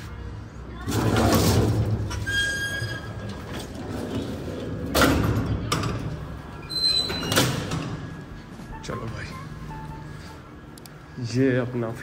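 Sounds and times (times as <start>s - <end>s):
scissor-grille lift door sliding: 0.8s - 9.3s.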